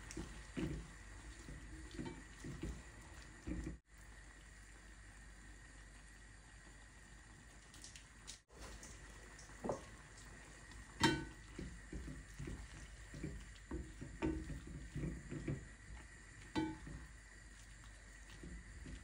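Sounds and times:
spatula stirring and scraping pot: 0.0s - 3.9s, 9.6s - 19.0s.

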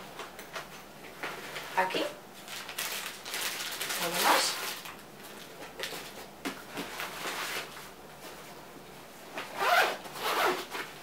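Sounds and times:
zipper pulls: 9.5s - 10.9s
nylon fabric rustling: 9.5s - 11.0s.

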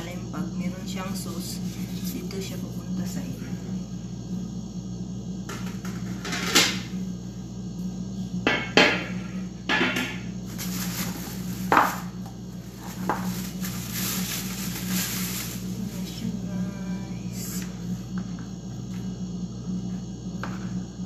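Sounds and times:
steady low hum: 0.0s - 21.0s
plastic wrapping crinkling: 10.5s - 16.2s.

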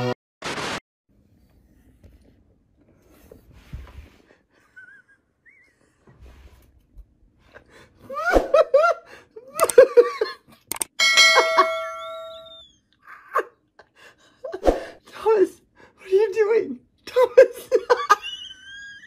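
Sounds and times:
click: 10.6s - 10.9s
bell-like chime: 11.0s - 12.5s.

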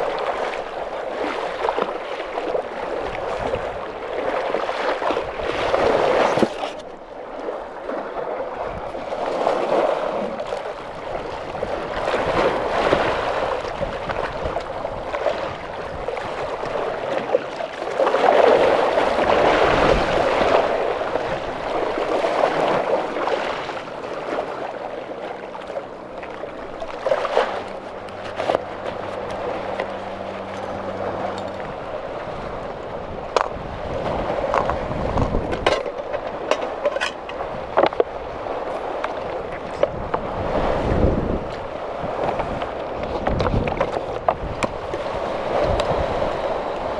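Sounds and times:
waves washing over rocks: 0.0s - 46.9s.

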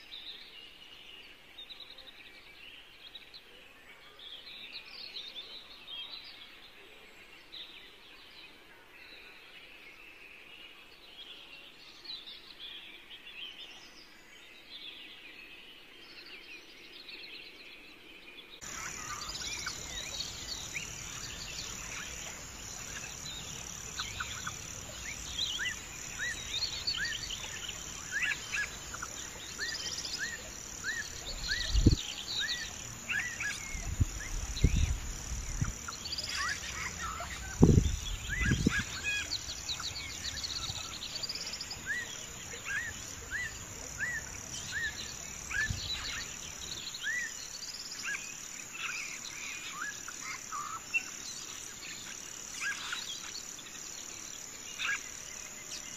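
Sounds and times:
small birds chirping: 18.5s - 55.9s
high insect trill: 18.6s - 55.9s.

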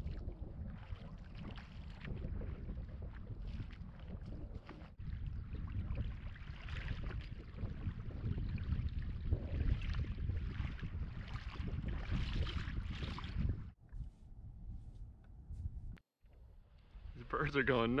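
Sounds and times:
water splashing around wading feet: 0.0s - 13.6s
wind buffeting microphone: 0.0s - 16.0s.

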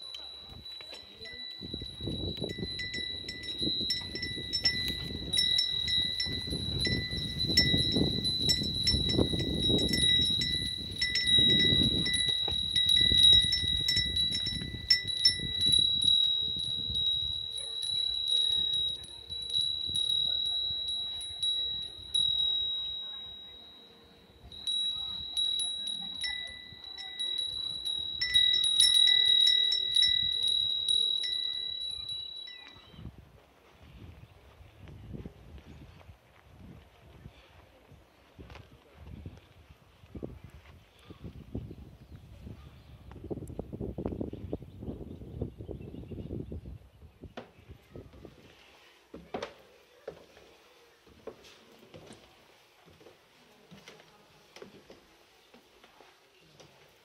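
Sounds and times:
wind bells tinkling: 0.0s - 33.2s.

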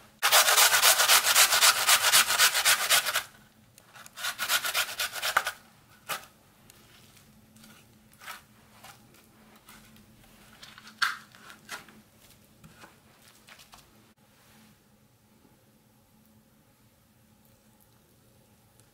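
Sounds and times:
potato grated on metal grater: 0.2s - 3.3s, 4.1s - 5.6s.

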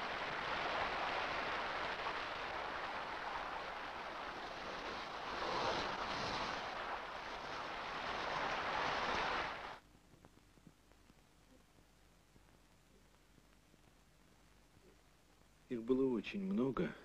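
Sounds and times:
hose water spraying on pavement: 0.0s - 9.8s.

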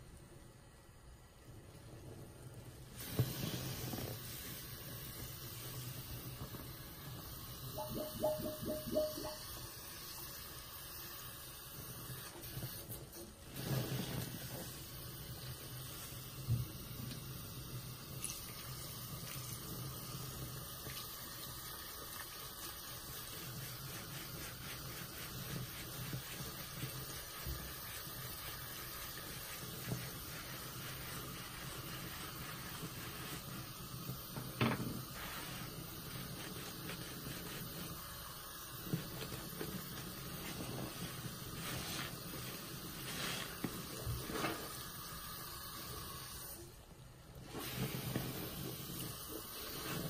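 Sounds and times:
tap water running into sink: 7.8s - 9.6s
sponge squelching in soapy water: 20.2s - 34.2s, 35.1s - 45.0s.

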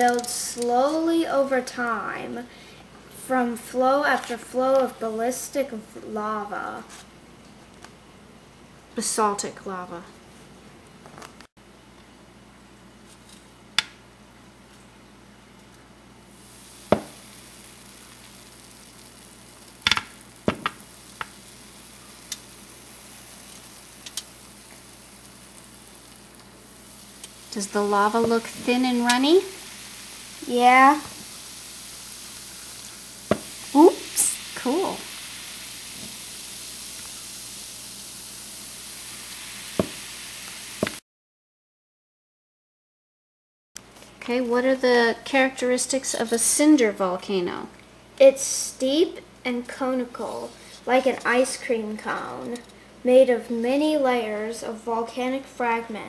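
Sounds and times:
baking soda fizzing: 16.3s - 41.0s.

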